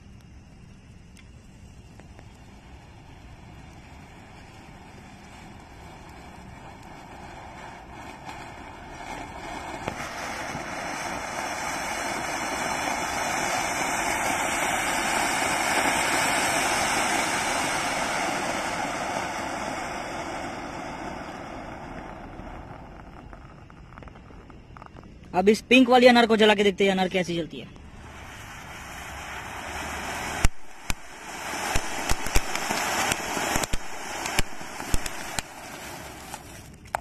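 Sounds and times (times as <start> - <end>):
firework fountain hissing: 0.0 - 37.0
sharp pop: 30.2 - 35.6.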